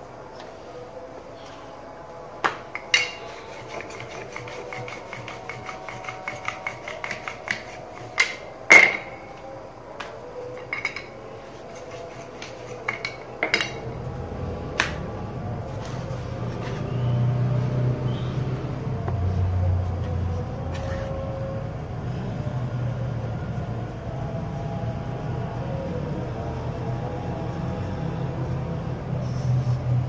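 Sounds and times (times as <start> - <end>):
rolling pin clicking on stone: 2.7 - 9.2, 11.8 - 14.0
low hum: 8.1 - 30.0.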